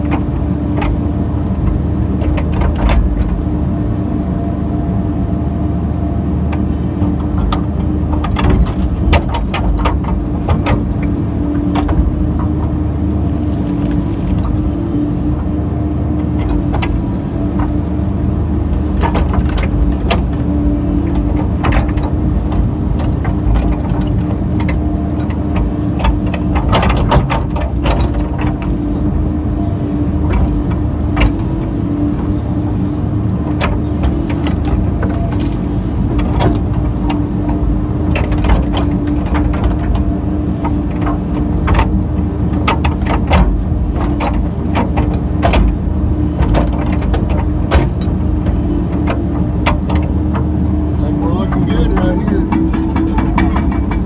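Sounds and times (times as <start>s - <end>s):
excavator diesel engine running: 0.0s - 54.0s
excavator bucket clanking: 16.2s - 54.0s.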